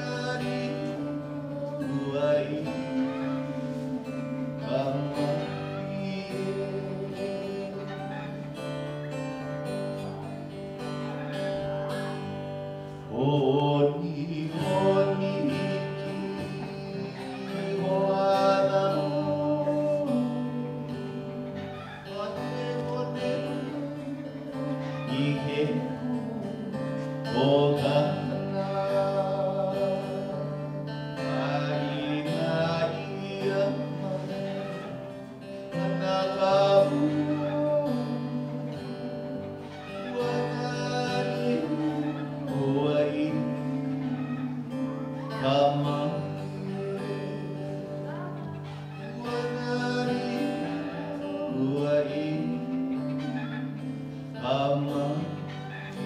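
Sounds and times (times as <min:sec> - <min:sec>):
acoustic guitar playing: 0:00.0 - 0:56.0
person singing: 0:00.0 - 0:56.0.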